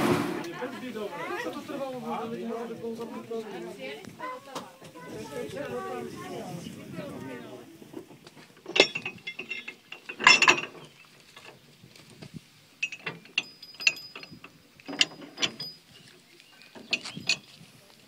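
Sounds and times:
metal chains clanking: 8.4s - 11.7s, 12.8s - 17.7s.

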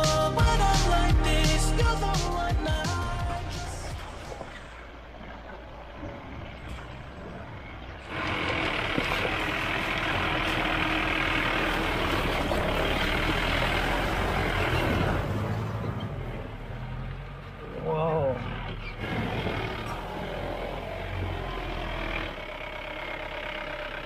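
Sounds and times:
car engine running: 0.0s - 24.0s
water rushing and splashing: 2.8s - 17.6s, 19.0s - 22.4s.

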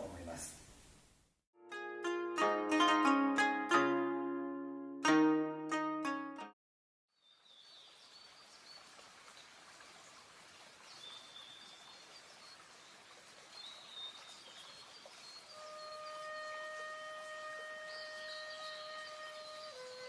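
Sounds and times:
soft steady outdoor hiss: 0.0s - 1.4s, 7.2s - 20.0s
plucked string music: 1.6s - 6.6s.

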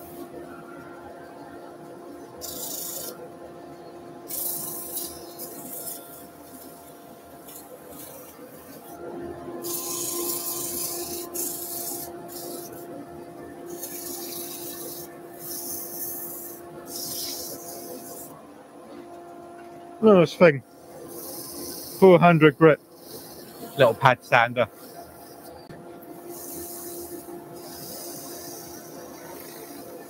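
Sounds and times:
lathe machine hum: 8.5s - 18.3s.

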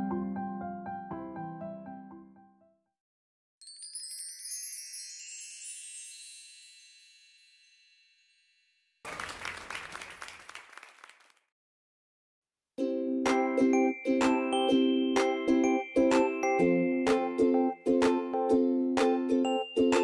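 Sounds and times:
shimmering bell-like chime: 3.6s - 9.0s.

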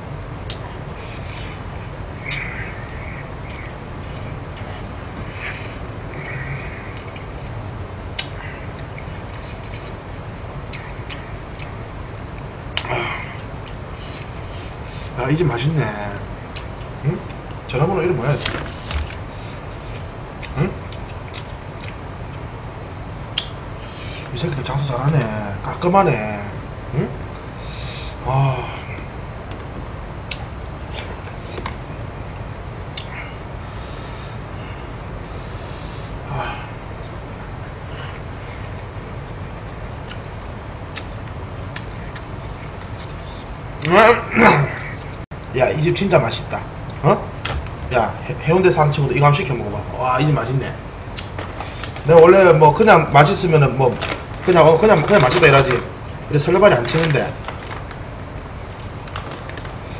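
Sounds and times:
steady low hum: 0.0s - 59.9s
man chewing and lip smacking: 0.2s - 1.6s, 2.3s - 5.8s, 6.6s - 14.7s, 16.5s - 17.7s, 18.7s - 22.5s, 23.4s - 23.6s, 30.2s - 33.2s, 38.1s - 43.9s, 51.1s - 52.0s.

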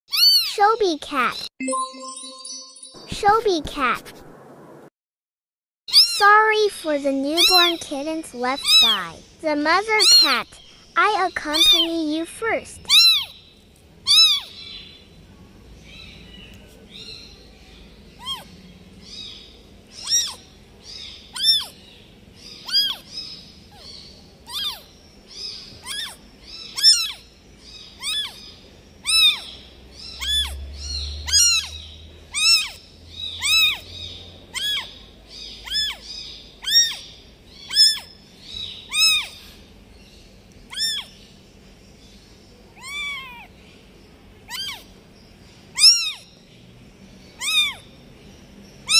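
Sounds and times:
kitten meowing: 0.1s - 0.6s, 5.9s - 6.2s, 8.6s - 9.0s, 10.0s - 10.4s, 11.5s - 11.9s, 12.9s - 13.3s, 14.1s - 14.5s, 20.0s - 20.4s, 21.4s - 21.7s, 22.7s - 23.0s, 24.5s - 24.9s, 25.8s - 26.2s, 26.8s - 27.2s, 28.0s - 28.4s, 29.0s - 29.5s, 30.2s - 30.6s, 31.3s - 32.8s, 33.4s - 33.8s, 34.5s - 34.9s, 35.6s - 36.0s, 36.6s - 37.0s, 38.9s - 39.3s, 40.7s - 41.1s, 42.8s - 43.5s, 44.5s - 44.8s, 45.8s - 46.2s, 47.4s - 47.8s.

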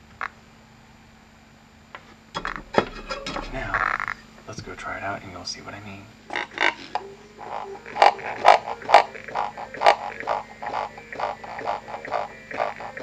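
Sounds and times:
steady low hum: 0.0s - 13.0s
music through paper cup speaker: 6.3s - 13.0s
regular beat: 6.3s - 13.0s.

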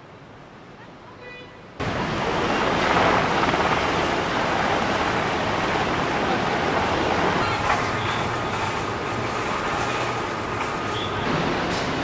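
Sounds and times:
wind and sea rushing: 1.8s - 7.8s
wind buffeting microphone: 1.8s - 9.7s.

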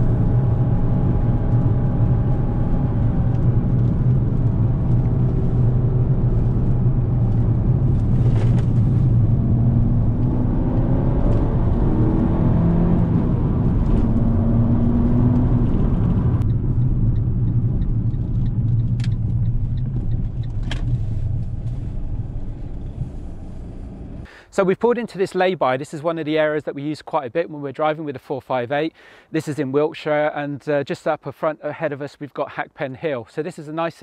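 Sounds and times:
car engine rumble: 0.0s - 24.3s
road noise inside car: 0.0s - 24.3s.

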